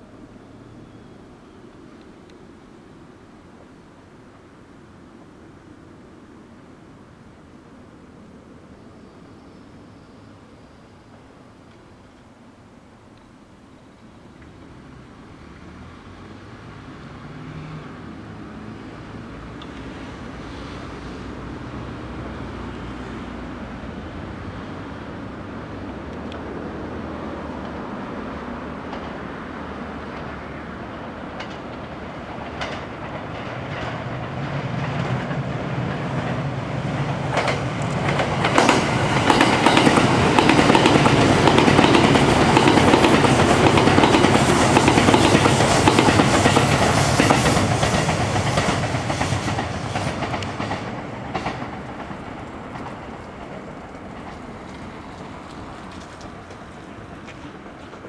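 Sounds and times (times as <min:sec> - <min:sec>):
train rumble: 0:00.0 - 0:58.0
train wheels clattering over rail joints: 0:28.8 - 0:29.2, 0:30.0 - 0:58.0.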